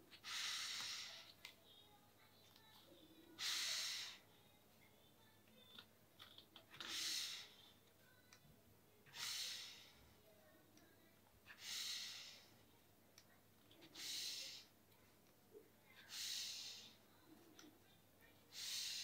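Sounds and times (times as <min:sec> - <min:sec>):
faint clicks: 0:05.4 - 0:06.9.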